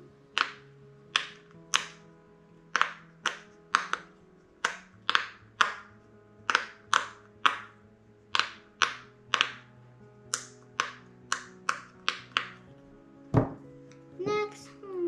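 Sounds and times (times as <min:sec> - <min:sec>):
fidget toy bubbles popping: 0:04.6 - 0:05.9.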